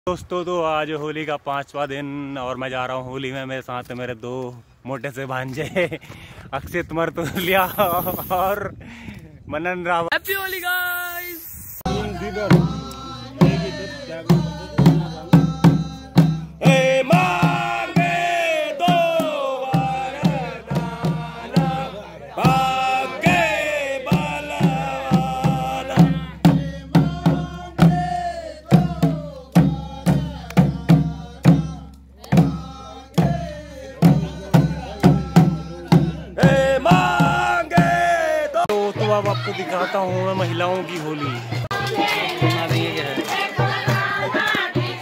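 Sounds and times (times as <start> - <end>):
men singing folk song: 11.8 - 45.0
drums beating: 11.9 - 45.0.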